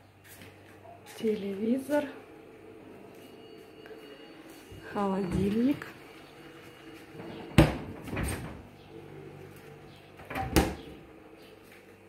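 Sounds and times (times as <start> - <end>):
refrigerator door knocking shut: 7.6 - 8.5, 10.3 - 11.0.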